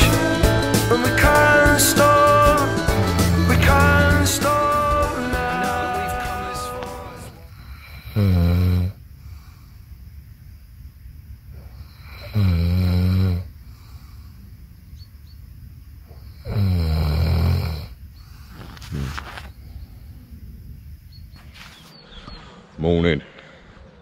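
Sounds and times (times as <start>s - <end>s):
man snoring: 0.0s - 9.4s, 12.0s - 14.0s, 16.4s - 18.0s.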